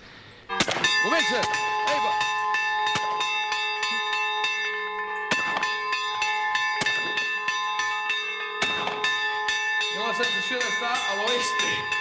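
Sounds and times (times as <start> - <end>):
sharp cracks: 0.5 - 2.1, 8.6 - 9.2
church bells pealing: 0.5 - 12.0.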